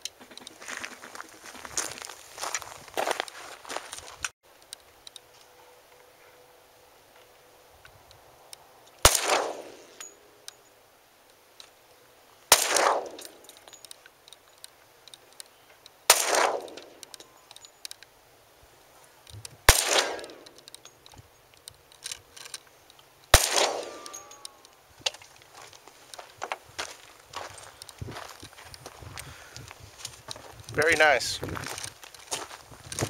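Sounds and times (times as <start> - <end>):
pistol shots with echo: 9.0 - 10.0, 12.5 - 13.3, 16.1 - 16.9, 19.7 - 20.4, 23.3 - 24.4.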